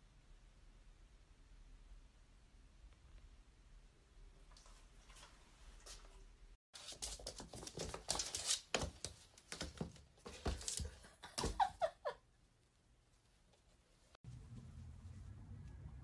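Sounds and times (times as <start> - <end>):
cat claws scrabbling on wood floor: 6.8 - 11.0.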